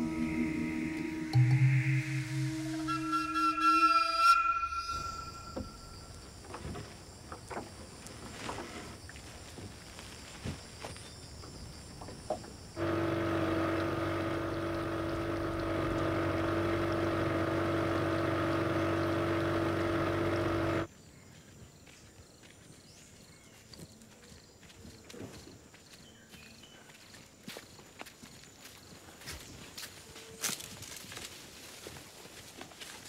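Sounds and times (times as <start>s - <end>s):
footsteps on dirt path: 7.9s - 11.3s, 21.1s - 33.0s
small boat engine running: 12.8s - 20.9s.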